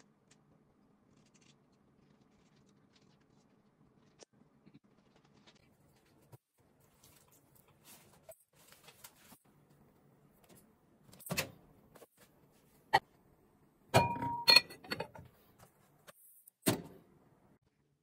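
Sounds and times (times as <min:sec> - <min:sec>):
glass bowl clattering: 0:14.0 - 0:15.2.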